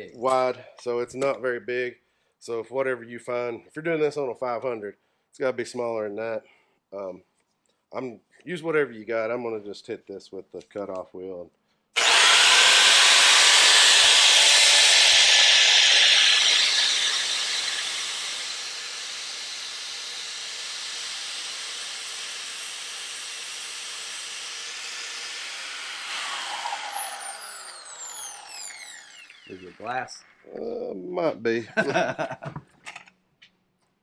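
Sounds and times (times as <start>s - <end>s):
die grinder grinding: 12.0s - 30.6s.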